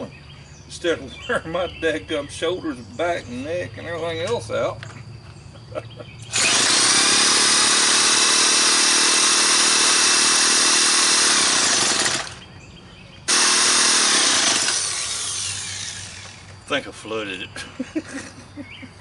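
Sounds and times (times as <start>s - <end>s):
drill cranking trimmer engine: 6.3s - 12.4s, 13.3s - 16.6s.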